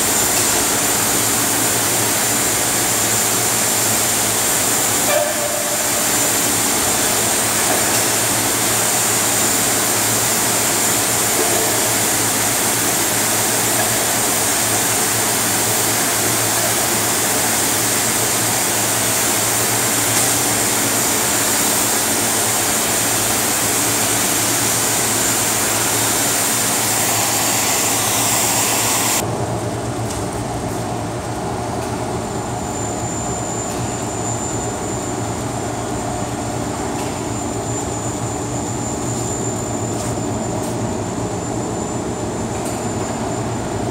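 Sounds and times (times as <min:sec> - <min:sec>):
cutting torch hissing: 0:23.4 - 0:29.2.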